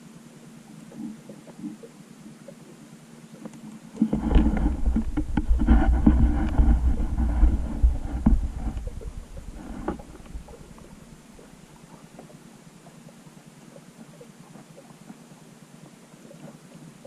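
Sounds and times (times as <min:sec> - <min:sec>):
muffled underwater rumble: 0:00.0 - 0:17.0
underwater crackles and knocks: 0:00.7 - 0:17.0.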